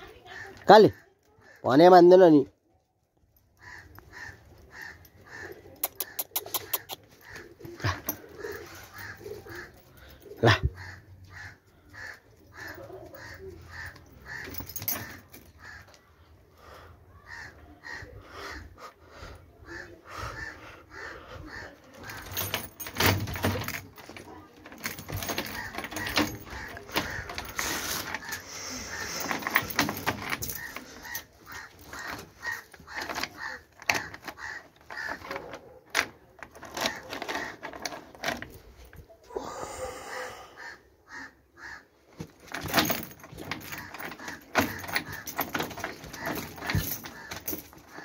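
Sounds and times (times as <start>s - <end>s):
metal chain rattling: 3.1s - 11.3s, 11.9s - 15.9s, 21.9s - 39.1s, 42.2s - 48.0s.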